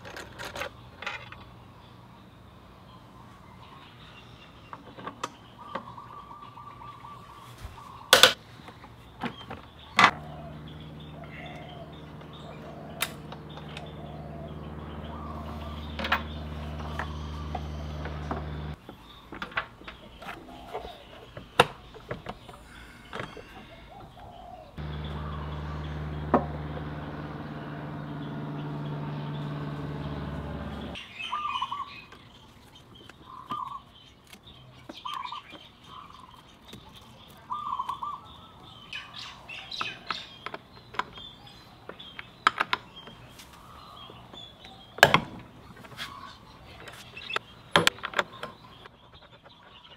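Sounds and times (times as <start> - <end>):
bird chirping: 0.6 - 49.9
steady low hum: 10.1 - 18.8, 24.8 - 31.0.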